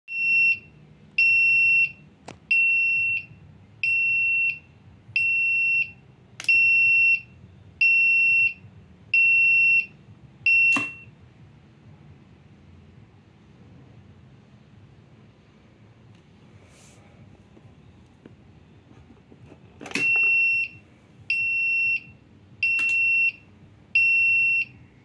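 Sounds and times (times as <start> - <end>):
buzzer beeping: 10.5 - 11.1, 19.9 - 23.4.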